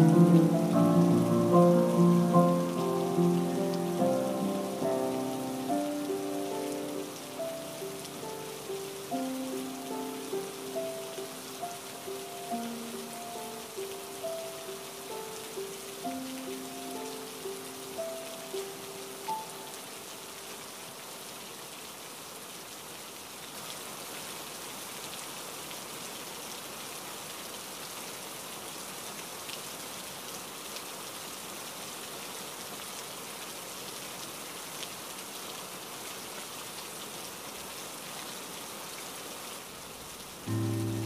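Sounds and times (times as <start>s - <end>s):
music: 0.0s - 20.5s, 40.5s - 41.0s
heavy rain: 0.0s - 41.0s.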